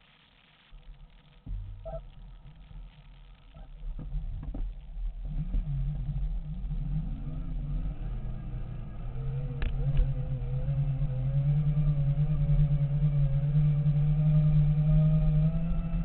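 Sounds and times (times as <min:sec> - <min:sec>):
low rumble: 0:00.7 - 0:16.0.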